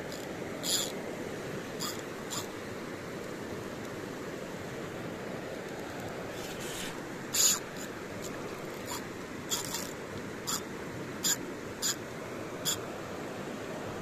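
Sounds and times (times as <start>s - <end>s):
fishing reel scrapes and clicks: 0.0s - 1.0s, 1.8s - 2.5s, 6.3s - 10.6s, 11.2s - 12.0s
steady background hiss: 0.0s - 14.0s.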